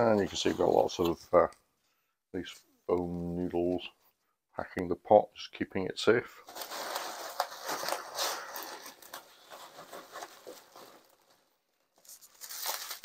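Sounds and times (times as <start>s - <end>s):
hands rustling foam packing noodles: 6.4s - 13.0s.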